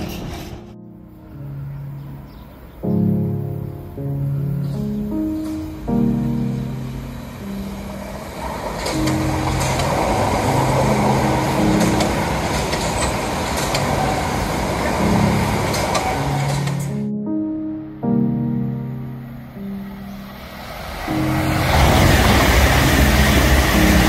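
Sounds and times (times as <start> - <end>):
train wheels rushing on rails: 0.0 - 0.7, 7.7 - 16.9, 20.3 - 24.0
background music with melody: 0.0 - 24.0.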